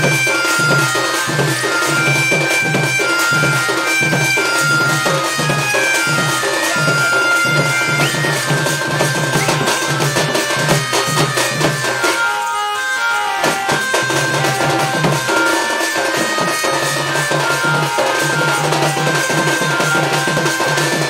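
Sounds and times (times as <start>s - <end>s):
drum beating steady rhythm: 0.0s - 21.0s
electronic keyboard reedy melody: 0.0s - 21.0s.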